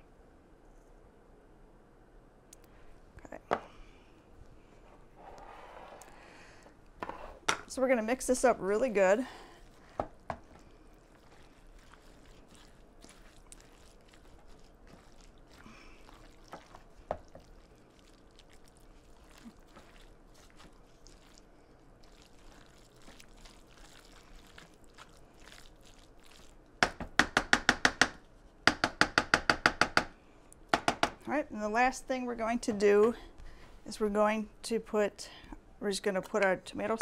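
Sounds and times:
spoon scraping in pot: 0:07.0 - 0:07.5.

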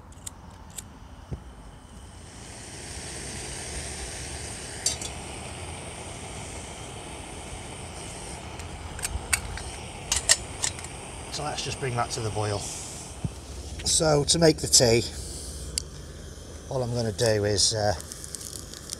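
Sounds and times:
camping stove hissing: 0:00.2 - 0:18.9
metal pot clinking on burner: 0:04.8 - 0:05.2.

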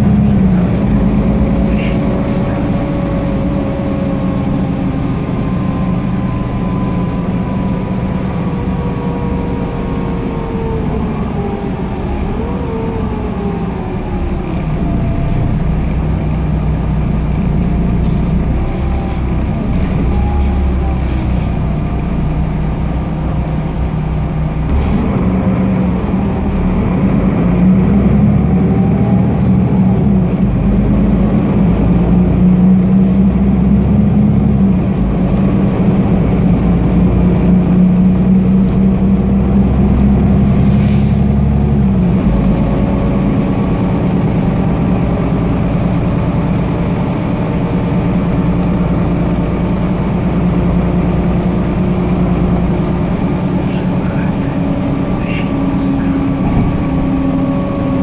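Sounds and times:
falling whine: 0:00.0 - 0:33.0
bus diesel engine running: 0:00.0 - 0:58.0
road rumble: 0:00.0 - 0:58.0.

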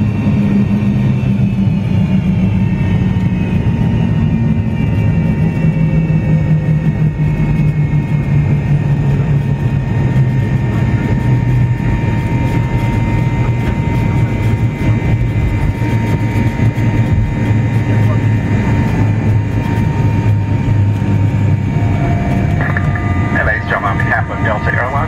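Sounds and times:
jet engine rumble and whine: 0:00.0 - 0:25.0.

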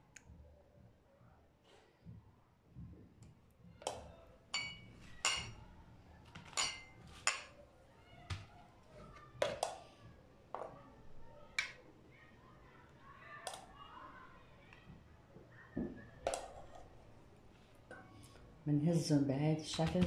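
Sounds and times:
spoon clinking on glass: 0:04.5 - 0:05.6, 0:06.5 - 0:07.5.

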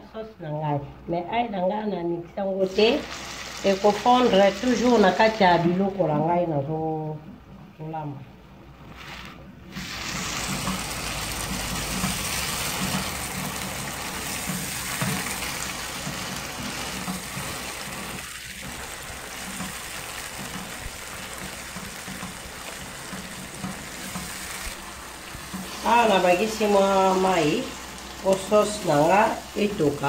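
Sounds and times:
sauce sizzling in a frying pan: 0:02.6 - 0:05.6, 0:09.7 - 0:30.0.

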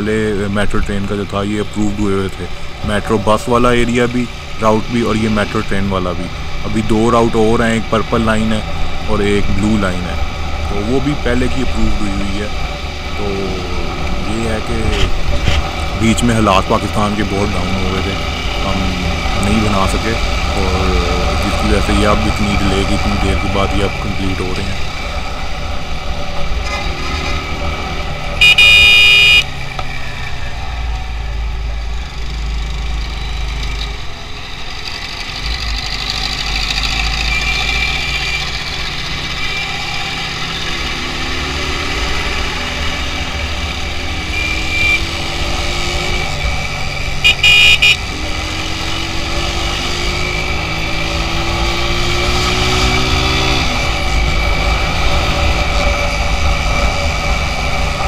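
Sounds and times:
vehicle horn: 0:28.4 - 0:29.5, 0:44.2 - 0:45.1, 0:47.2 - 0:48.2
motorcycle engine accelerating: 0:34.7 - 0:58.0.

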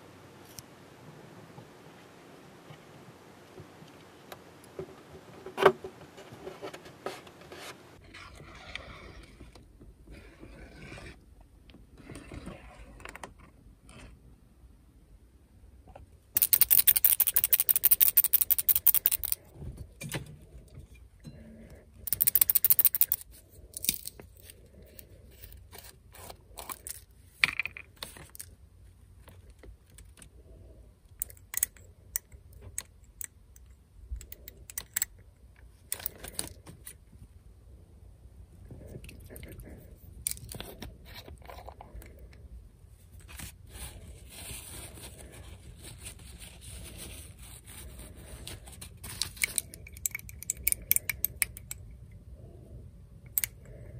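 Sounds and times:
faint steady hiss: 0:00.0 - 0:10.3
paint jar clinking rattle: 0:16.4 - 0:19.4, 0:22.1 - 0:23.2.

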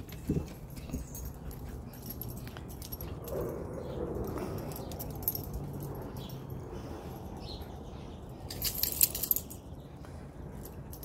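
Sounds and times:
low outdoor background: 0:00.0 - 0:11.0
small metal pieces jingling: 0:04.2 - 0:06.6, 0:08.5 - 0:09.6.

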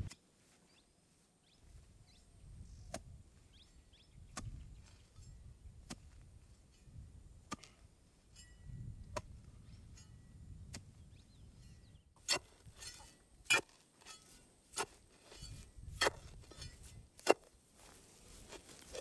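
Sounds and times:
digging tool chopping into ground: 0:12.2 - 0:17.5.

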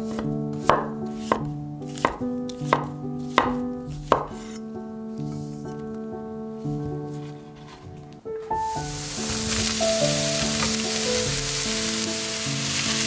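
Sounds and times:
soft instrumental music: 0:00.0 - 0:13.0
cleaver knocking on cutting board: 0:00.1 - 0:04.5.

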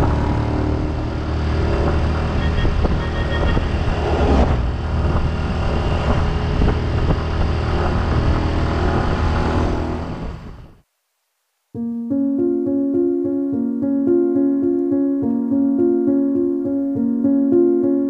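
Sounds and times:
wind rushing over microphone: 0:00.0 - 0:10.8.

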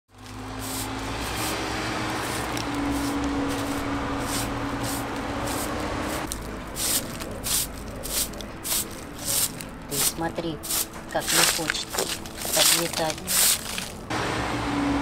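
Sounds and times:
broom sweeping concrete: 0:00.1 - 0:14.0.

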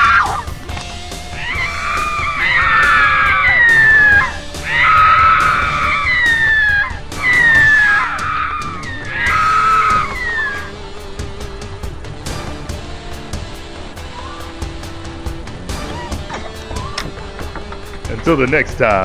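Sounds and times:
rooster crowing: 0:01.4 - 0:10.8.

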